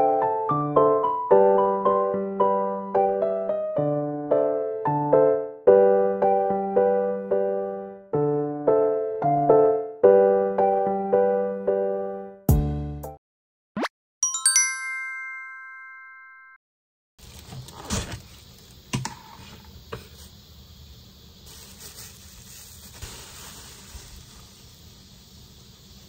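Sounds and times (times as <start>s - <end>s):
piano music: 0.0s - 13.2s, 14.2s - 16.6s
bright ringing chime: 14.2s - 16.6s.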